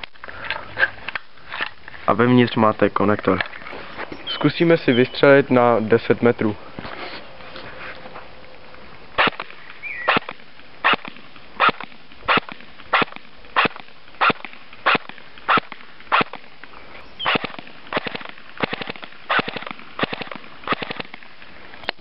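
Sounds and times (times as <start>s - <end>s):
airsoft rifle shots: 9.2s - 16.5s, 17.2s - 21.2s.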